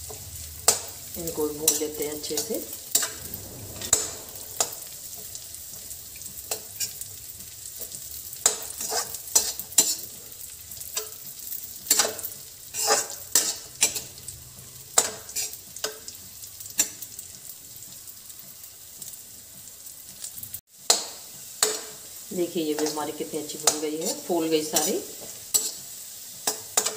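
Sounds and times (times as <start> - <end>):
raisins sizzling in ghee: 0.0 - 26.9
metal spoon scraping pan: 7.8 - 10.2, 11.9 - 14.2, 22.7 - 26.9.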